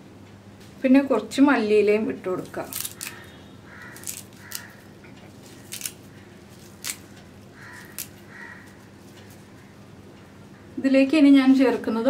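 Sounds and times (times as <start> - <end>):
leaves rustling: 2.4 - 9.5.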